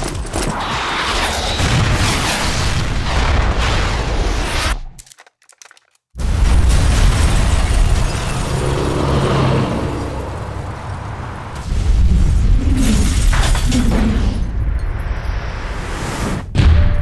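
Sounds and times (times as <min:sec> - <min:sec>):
explosion blasts rumbling: 0:06.2 - 0:13.4.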